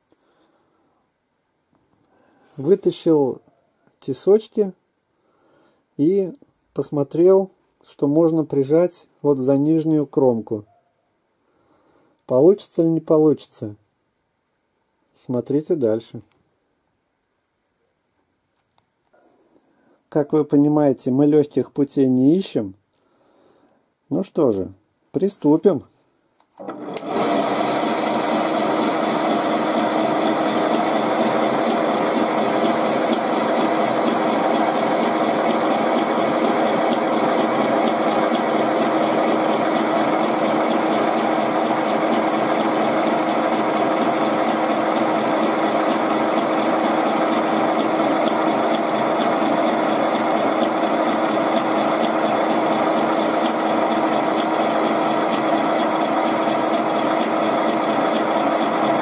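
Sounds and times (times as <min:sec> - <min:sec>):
milling machine running: 0:26.6 - 0:59.0.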